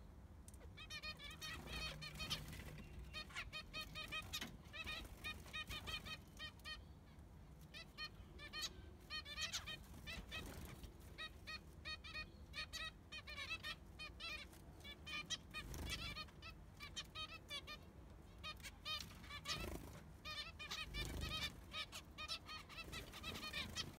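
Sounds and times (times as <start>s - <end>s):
finches honk-like calls: 0.6s - 24.0s
wings fluttering: 9.7s - 11.1s, 15.5s - 16.2s, 19.0s - 21.6s, 22.7s - 24.0s.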